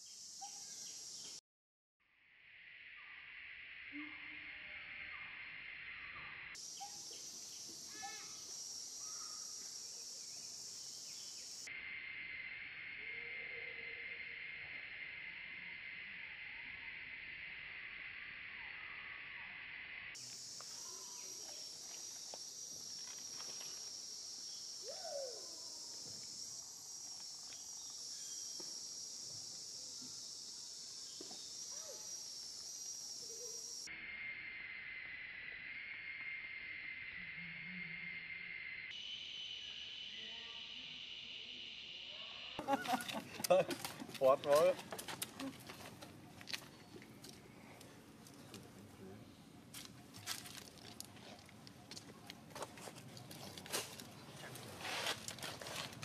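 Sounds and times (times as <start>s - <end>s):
insects droning: 0.0s - 1.4s, 2.1s - 56.0s.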